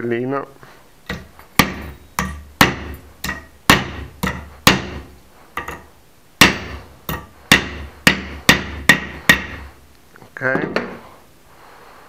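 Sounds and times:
hammer striking metal blade: 1.1 - 9.6.

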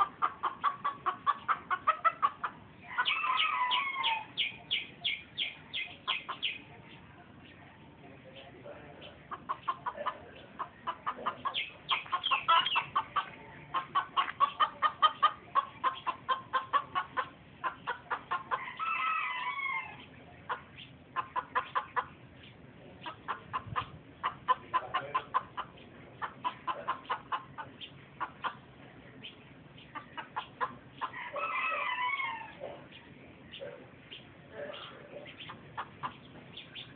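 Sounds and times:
rooster clucking: 0.0 - 6.8, 9.1 - 22.3, 23.0 - 28.8, 29.9 - 32.9, 34.6 - 36.9
rooster crowing: 2.9 - 4.4, 18.6 - 20.0, 31.2 - 32.6.

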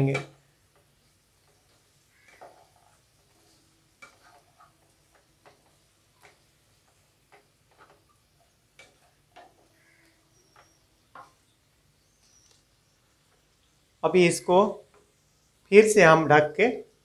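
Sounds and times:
wooden spatula scraping a pan: 0.7 - 11.5.

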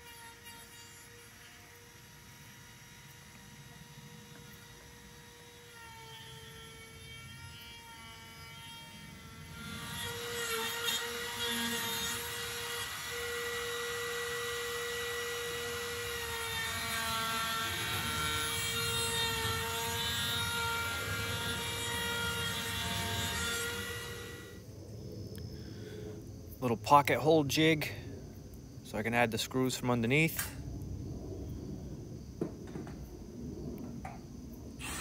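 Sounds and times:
router bit cutting wood: 0.0 - 24.6, 34.8 - 35.0
router whining: 0.0 - 24.6, 34.8 - 35.0.

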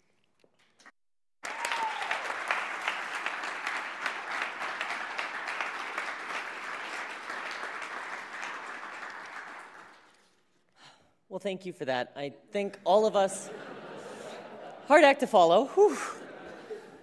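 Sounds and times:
audience applauding: 1.4 - 10.2.

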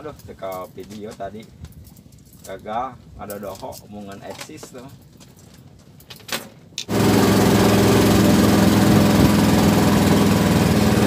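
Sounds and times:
small boat motor running: 6.9 - 11.0.

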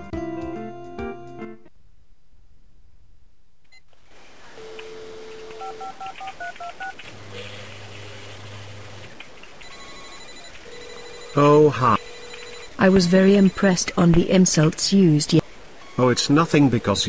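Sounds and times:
telephone dial tone: 4.6 - 7.5, 9.6 - 13.7
touch-tone keypad beeps: 5.5 - 6.7, 9.6 - 11.4, 12.0 - 13.8.

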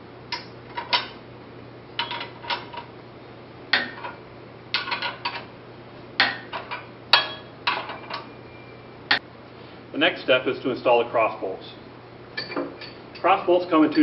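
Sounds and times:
wrenches clinking on metal: 2.0 - 2.9.

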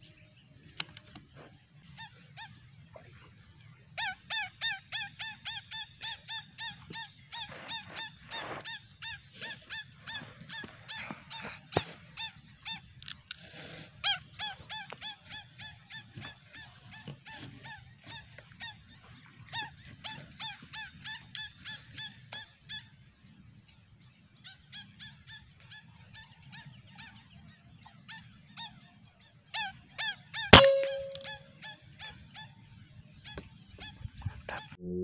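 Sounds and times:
birds calling in short sharp notes: 0.0 - 23.0, 24.1 - 32.5
air rifle shot: 30.6 - 31.3
brief ringing tone: 30.6 - 31.3.

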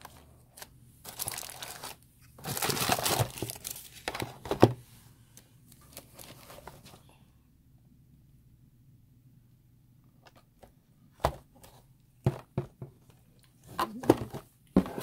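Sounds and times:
plastic wrap crinkling: 0.0 - 4.4.

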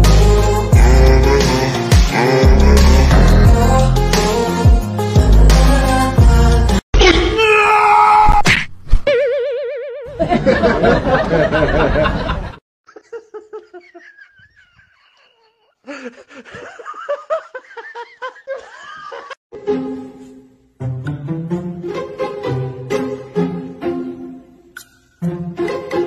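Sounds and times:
music: 0.0 - 6.8, 19.5 - 26.0
people laughing: 10.1 - 19.4.

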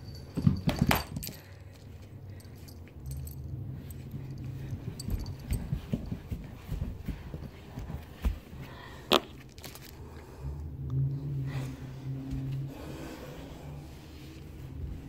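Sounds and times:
toy ball clattering on floor: 0.0 - 1.8.

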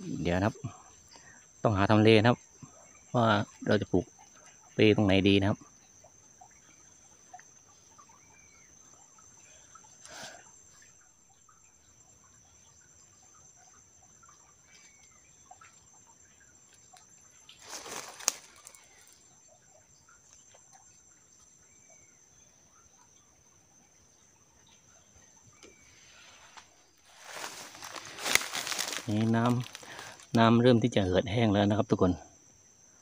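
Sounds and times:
bird chirps: 0.0 - 31.9
insect drone: 0.0 - 33.0.

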